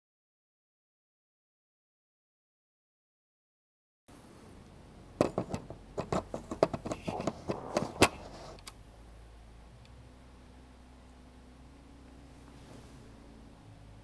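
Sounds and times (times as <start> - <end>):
faint low hum: 4.1 - 14.0.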